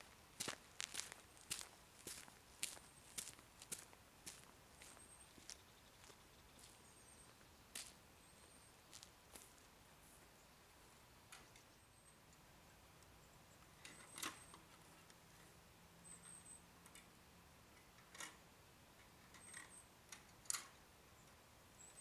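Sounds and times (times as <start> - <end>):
faint metal gate clicks and knocks: 16.8 - 18.4, 19.0 - 21.4.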